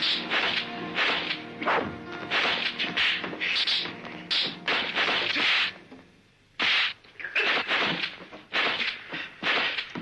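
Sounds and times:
background music with held notes: 0.0s - 6.3s
punch and kick smacks: 0.1s - 5.7s, 6.6s - 10.0s.

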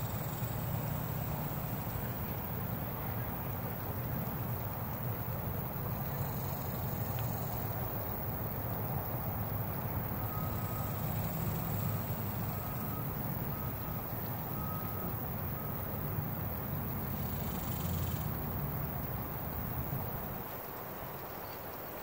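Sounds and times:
vehicle engine rumble: 0.0s - 22.0s
faint reversing alarm beep: 8.9s - 20.3s.

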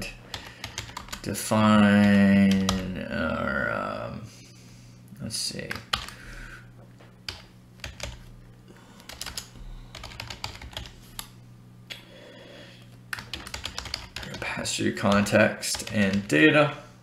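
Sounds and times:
steady low hum: 0.0s - 17.0s
typing on computer keyboard: 0.3s - 1.3s, 5.7s - 6.2s, 7.3s - 8.3s, 9.0s - 11.3s, 13.1s - 14.5s, 15.1s - 16.3s.

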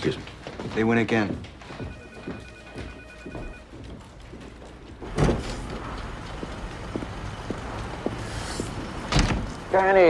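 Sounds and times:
light footsteps: 0.0s - 9.6s
street traffic hum: 3.7s - 10.0s
heavy door thudding: 5.0s - 5.9s, 9.0s - 9.6s.

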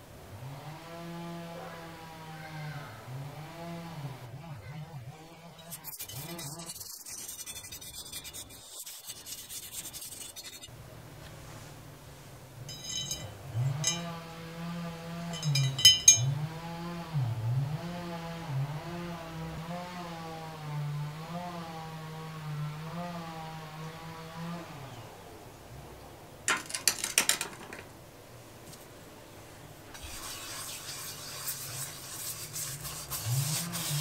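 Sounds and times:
paintbrush scrubbing metal lid: 5.2s - 10.7s, 12.7s - 14.1s, 15.3s - 16.3s, 30.0s - 34.0s
low wavering hum: 12.6s - 21.9s.

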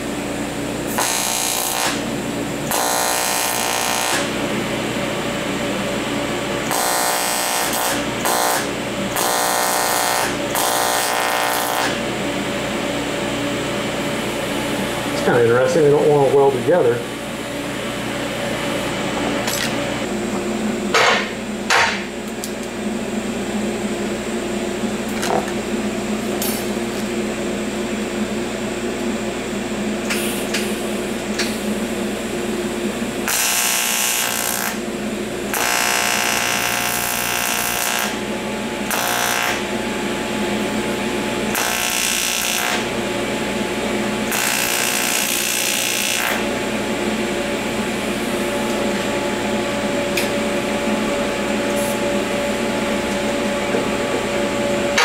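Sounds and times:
welding arc harsh buzz: 0.0s - 28.4s, 29.3s - 55.0s
steady machine hum: 0.0s - 55.0s.

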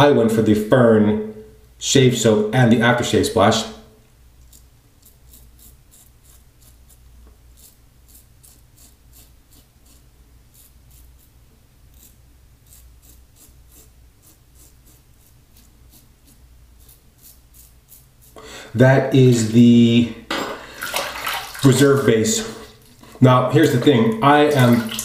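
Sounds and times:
razor scraping stubble: 4.4s - 18.4s.

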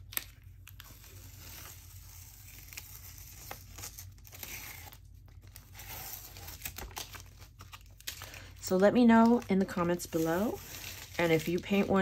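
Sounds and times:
tape peeling off paper: 0.0s - 8.4s.

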